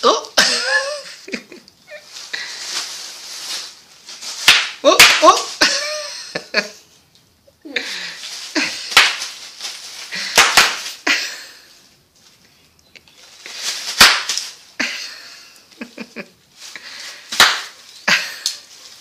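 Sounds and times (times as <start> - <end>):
plastic crackling: 1.9 - 5.7, 8.1 - 11.1, 12.2 - 14.8
bubble wrap popping: 1.9 - 5.8, 8.2 - 11.1, 13.1 - 14.8, 16.5 - 19.0.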